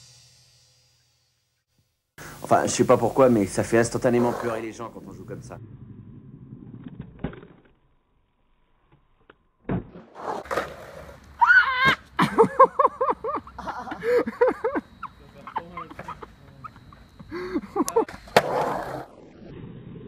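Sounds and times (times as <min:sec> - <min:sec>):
skateboard knocking and rolling on concrete: 0:05.9 - 0:08.0, 0:08.8 - 0:12.2, 0:15.0 - 0:17.3, 0:18.0 - 0:20.0.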